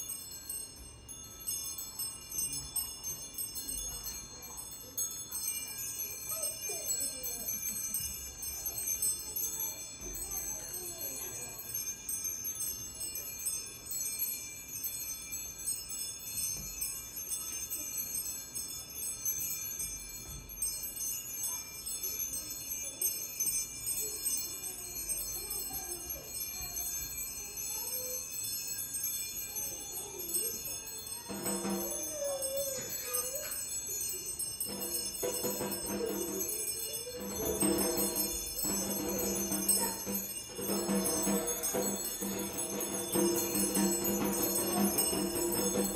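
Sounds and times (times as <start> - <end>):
metallic jingling shimmer: 0.0 - 45.9
snare drum played with jingling metal: 31.3 - 32.1, 34.7 - 45.9.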